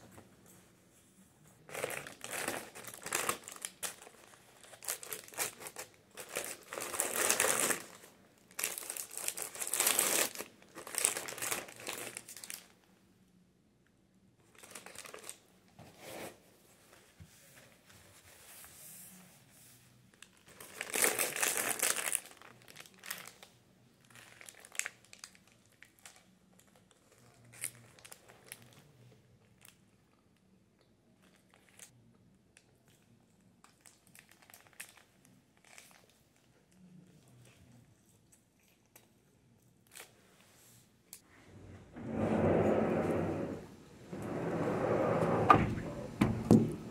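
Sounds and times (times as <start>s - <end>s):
paper bag crinkling: 1.7s - 12.7s, 14.5s - 15.4s, 20.3s - 23.4s, 24.1s - 28.8s.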